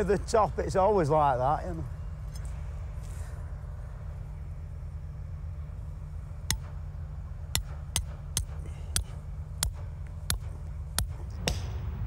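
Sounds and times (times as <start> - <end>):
low steady hum: 0.0 - 12.0
hammer striking metal tool: 7.5 - 11.7.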